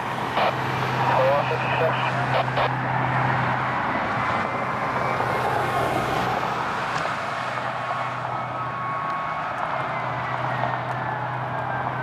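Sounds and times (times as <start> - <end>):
fire engine driving away: 0.0 - 12.0.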